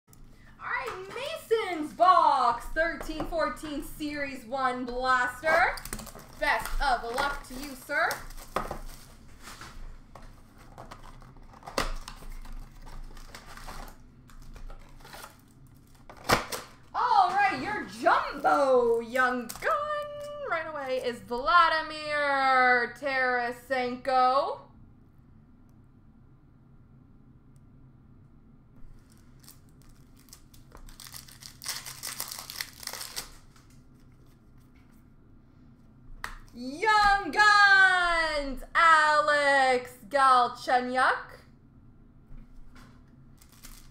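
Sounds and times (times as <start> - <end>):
card packs rustling and clicking: 5.0 - 21.1, 28.9 - 34.9, 42.8 - 43.9.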